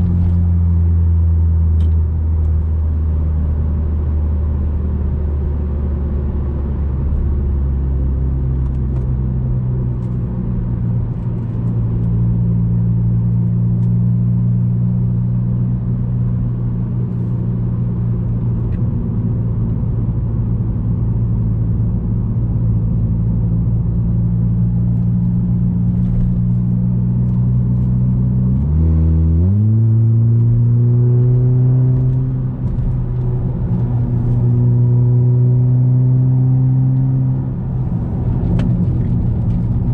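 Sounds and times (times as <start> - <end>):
car engine revving: 25.0 - 39.9.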